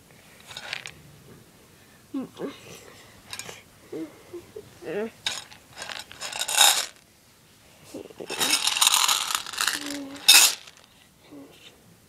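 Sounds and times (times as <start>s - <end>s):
plush toys rustling and scraping: 0.3s - 0.9s, 5.2s - 7.0s, 8.2s - 11.0s
small metallic clinks: 3.3s - 3.6s, 8.3s - 10.8s.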